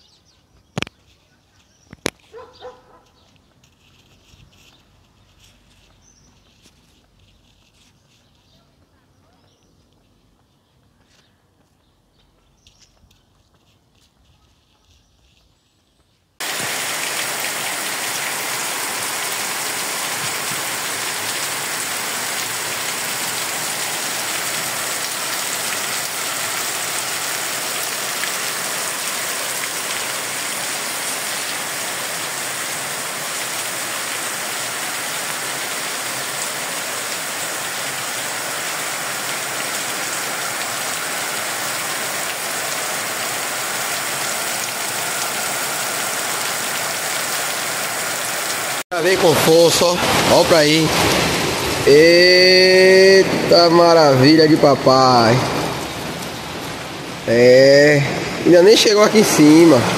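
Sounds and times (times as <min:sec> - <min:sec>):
heavy rain pouring: 0:16.4 - 0:59.9.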